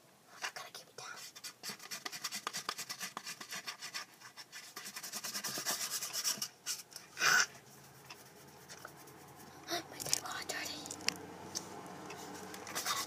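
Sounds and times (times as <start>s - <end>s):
marker scribbling on cardboard: 1.0s - 6.9s, 12.7s - 13.0s.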